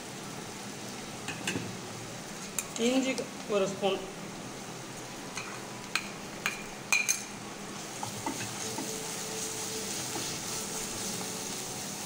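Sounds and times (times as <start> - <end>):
vegetables sizzling in hot oil: 0.0 - 12.0
spatula stirring: 7.8 - 11.8.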